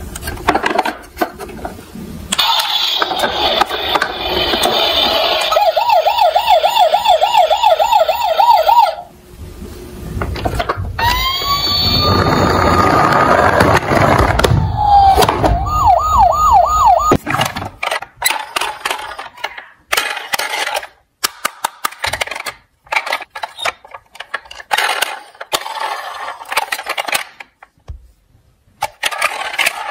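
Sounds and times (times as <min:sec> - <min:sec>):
toy siren warbling: 0:04.4 - 0:09.1, 0:11.0 - 0:13.6, 0:14.6 - 0:17.2
low rumbling noise: 0:09.0 - 0:17.3.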